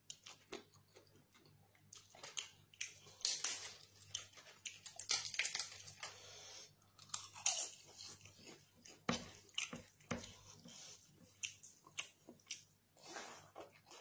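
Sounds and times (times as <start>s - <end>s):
crunchy chewing: 0.0s - 14.0s
wet squishes of fingers in food: 7.9s - 14.0s.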